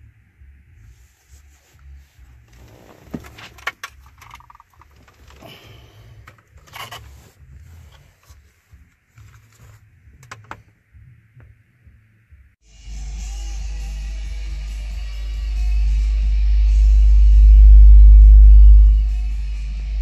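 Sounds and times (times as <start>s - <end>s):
low handling rumble: 10.8s - 20.0s.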